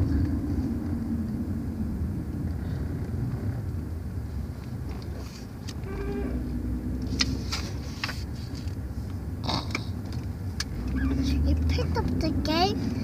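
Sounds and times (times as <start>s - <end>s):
car cabin rumble: 0.0s - 13.0s
book pages rustling and turning: 7.0s - 8.8s.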